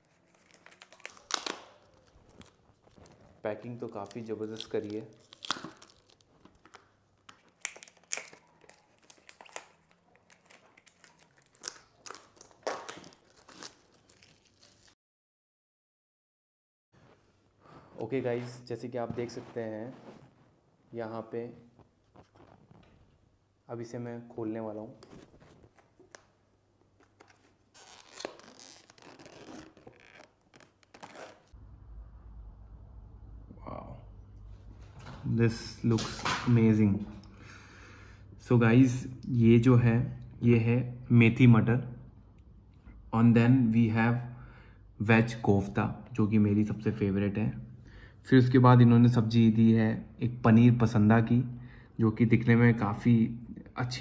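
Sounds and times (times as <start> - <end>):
plastic film crinkling: 0.0 - 15.0, 24.9 - 31.6
tape ripping: 0.0 - 15.0, 27.0 - 31.6
low steady hum: 31.6 - 43.8.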